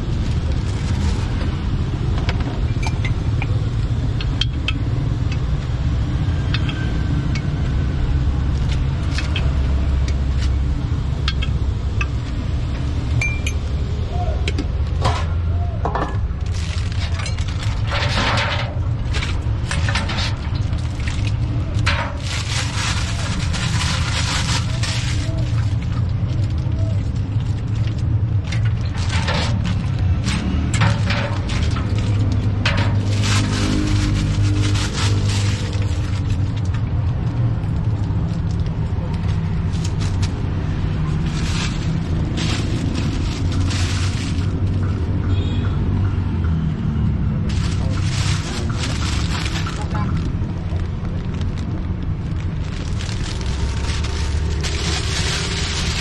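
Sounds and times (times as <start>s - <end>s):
plastic bag crinkling: 0.0s - 1.8s, 16.2s - 45.1s, 47.4s - 56.0s
steady low rumble: 14.8s - 45.2s, 47.1s - 56.0s
liquid splashing into plastic bag: 47.5s - 56.0s.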